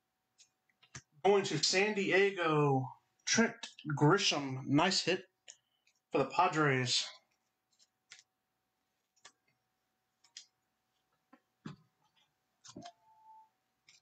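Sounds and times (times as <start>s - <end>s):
cards clicking being shuffled: 7.7s - 8.3s, 9.1s - 9.6s.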